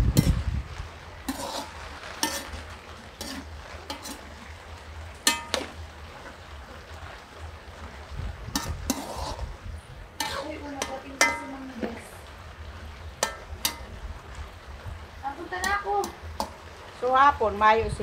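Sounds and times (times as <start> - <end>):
oil sizzling: 0.0 - 18.0
metal spatula scraping wok: 0.1 - 6.9, 8.5 - 12.1, 13.2 - 14.0, 15.5 - 16.8.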